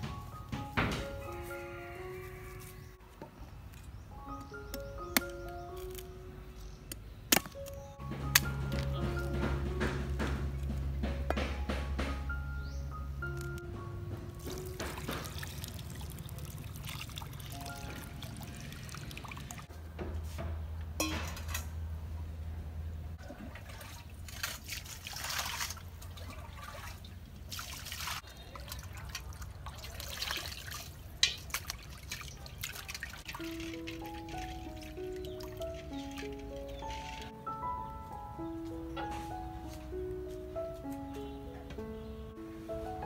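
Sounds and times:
coconut water trickling into bowl: 14.4s - 19.7s, 23.2s - 36.4s
water sloshing in metal basin: 14.4s - 19.7s, 23.2s - 37.3s.

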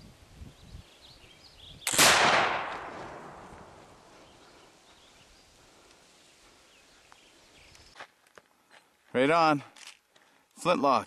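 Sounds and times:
rifle shot: 1.8s - 3.7s.

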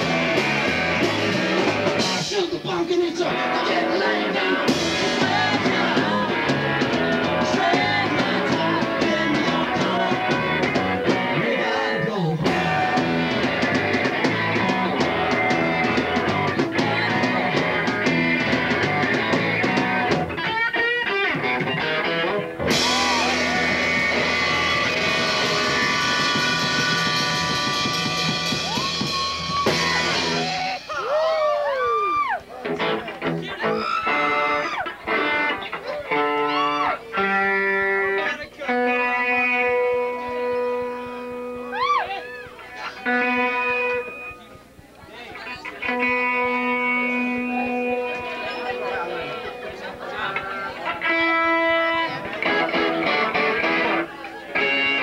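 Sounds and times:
punk rock band playing: 0.0s - 31.3s, 32.2s - 44.8s, 45.4s - 55.0s
person singing: 3.2s - 17.9s.

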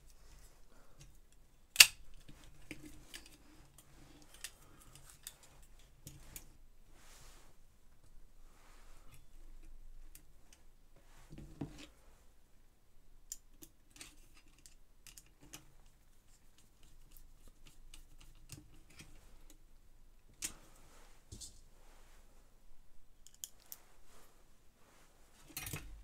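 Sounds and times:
screwdriver and metal parts clicking: 23.2s - 23.7s.

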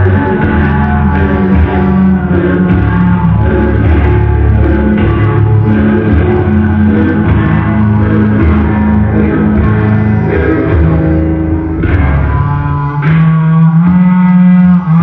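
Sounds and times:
loud rock music with guitar: 0.0s - 15.0s.

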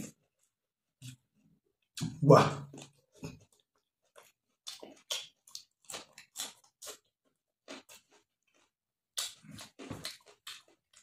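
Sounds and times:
wet chewing of food: 0.0s - 11.0s.

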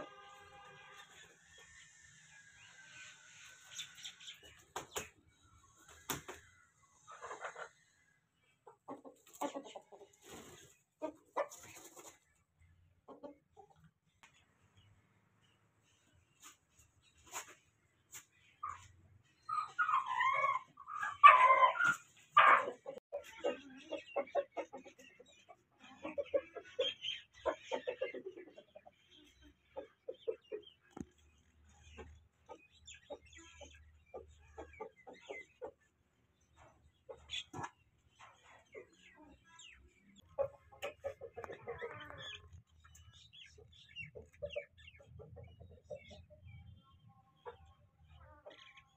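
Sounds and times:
hen clucking: 6.1s - 12.2s, 13.0s - 13.9s, 18.5s - 31.2s, 31.8s - 48.9s
chicken crowing: 19.9s - 22.7s.

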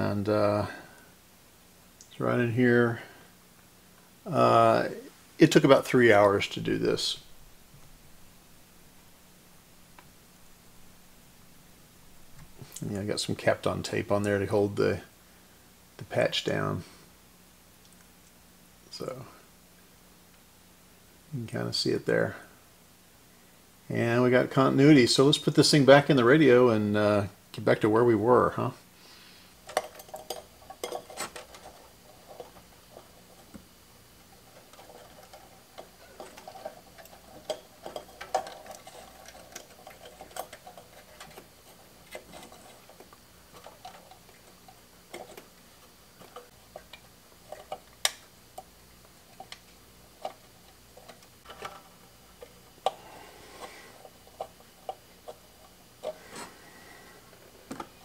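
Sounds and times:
faint steady hum: 0.0s - 58.0s.

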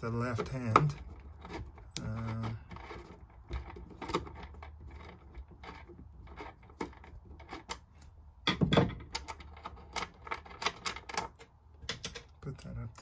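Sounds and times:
handling clatter: 0.0s - 12.4s
screwdriver clicks and scrapes: 0.1s - 8.2s.

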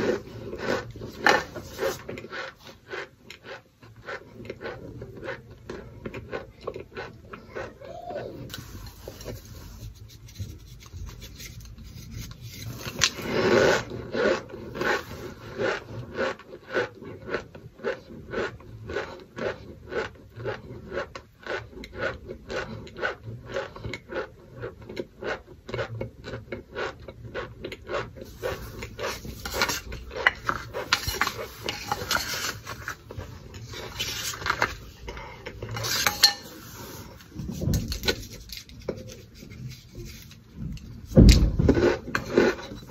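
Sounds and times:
crunchy chewing: 0.0s - 9.4s, 10.4s - 36.1s.

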